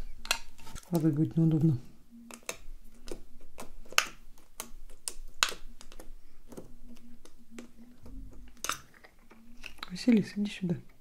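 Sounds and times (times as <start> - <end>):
nails clicking on slime: 2.2 - 9.0.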